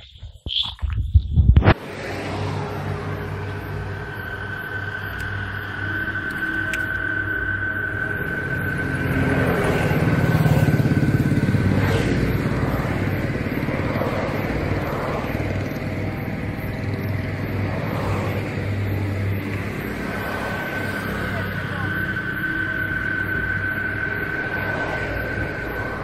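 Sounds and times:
motor engine running: 8.0 - 22.2.

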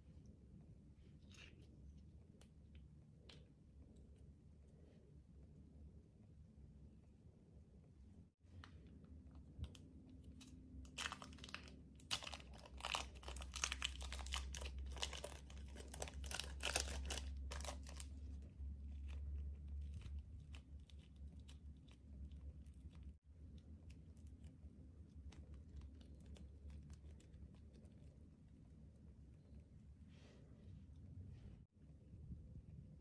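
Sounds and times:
plastic wrapper crinkling: 9.5 - 22.0.

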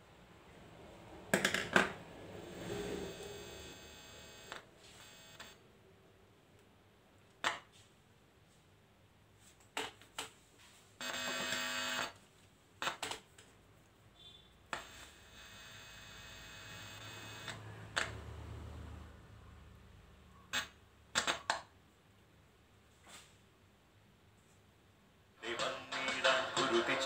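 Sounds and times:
speaker buzz: 2.5 - 5.6, 11.0 - 12.2, 14.7 - 18.2.

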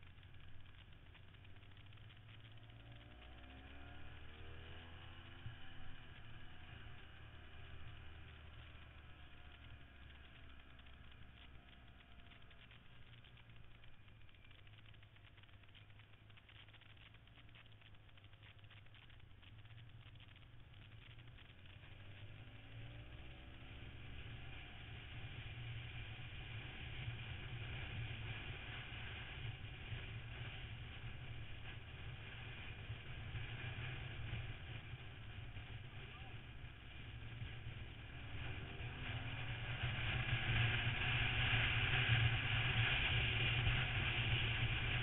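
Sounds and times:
faint clicks: 0.0 - 3.5, 7.9 - 23.1
faint motorcycle engine running: 0.0 - 45.0
low road rumble: 0.0 - 45.0.

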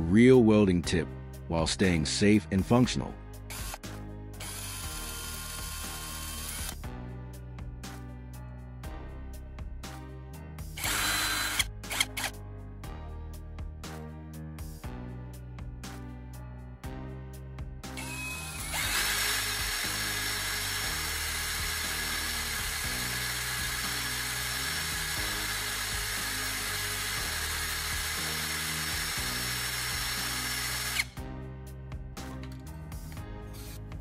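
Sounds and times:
power tool grinding with high whine: 4.4 - 6.8, 10.8 - 12.3, 18.0 - 31.1.

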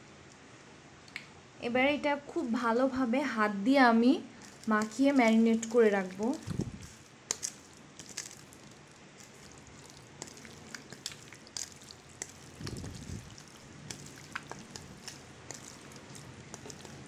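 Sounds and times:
wet squelches of meat: 4.4 - 17.0.

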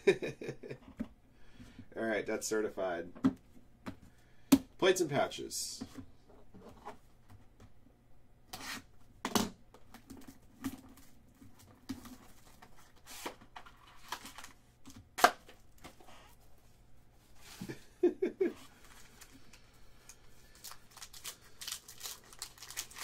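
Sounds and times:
foil wrappers tearing and crinkling: 20.4 - 23.0.

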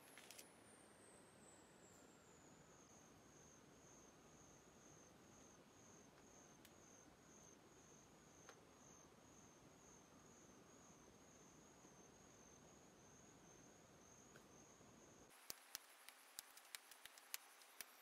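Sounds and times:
faint ticks: 15.3 - 18.0.

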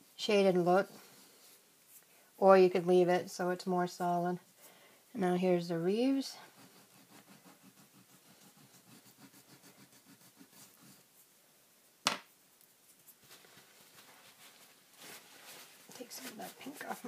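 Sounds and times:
oil pastel scratching on card: 6.1 - 11.2, 16.2 - 17.0.

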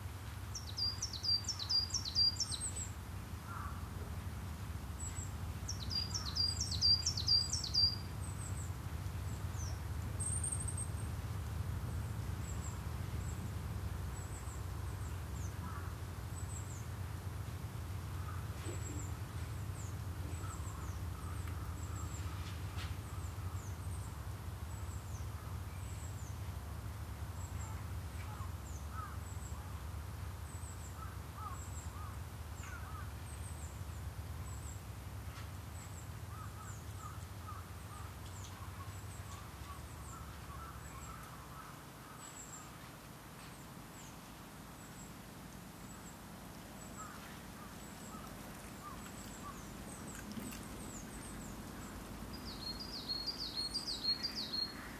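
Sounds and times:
lower bird chirping: 0.0 - 54.9
wind rumble: 3.0 - 29.1.

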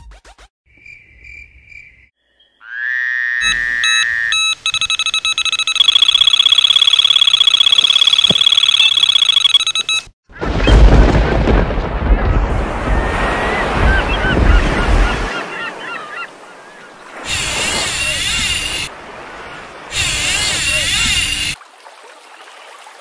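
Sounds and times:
electronic tone: 3.4 - 10.1
short high electronic beeps: 3.4 - 10.1
rushing noise burst: 17.2 - 21.6.

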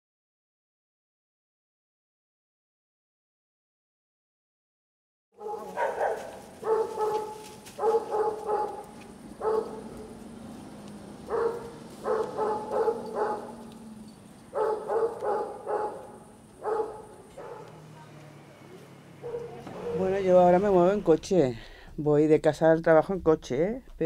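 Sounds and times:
dog barking: 5.4 - 10.2, 11.2 - 13.7, 14.5 - 18.0, 19.1 - 20.2.

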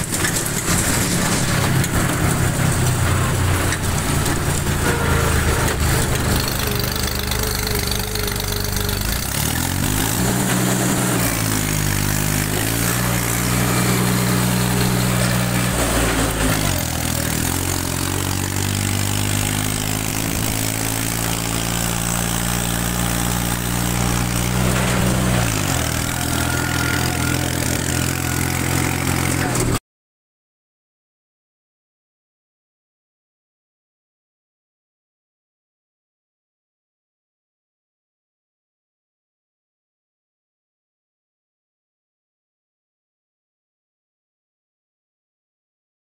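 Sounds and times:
tractor diesel engine running: 0.0 - 29.8.

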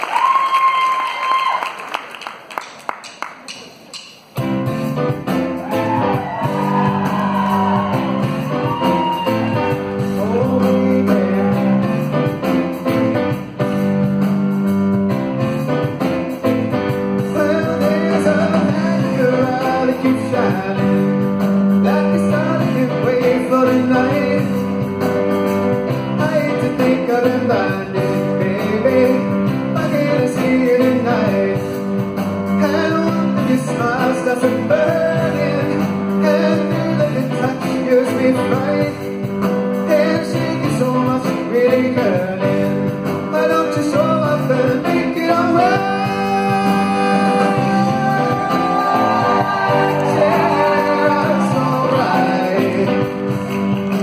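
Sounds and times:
drum kit: 2.6 - 54.0
electric guitars: 33.2 - 54.0.

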